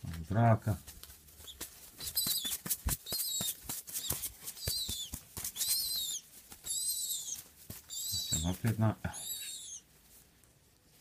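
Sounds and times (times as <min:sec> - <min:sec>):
pigeon squab squeaky begging calls: 0:01.4 - 0:09.9.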